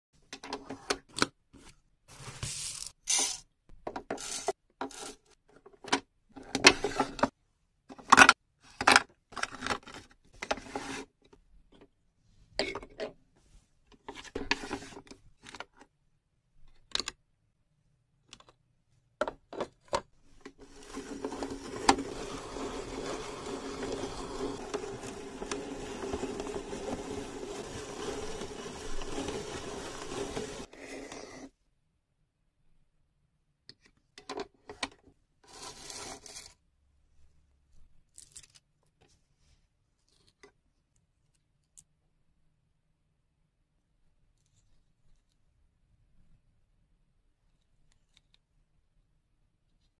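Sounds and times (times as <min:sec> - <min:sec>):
machine grinding frozen fruit: 0:20.6 - 0:30.7.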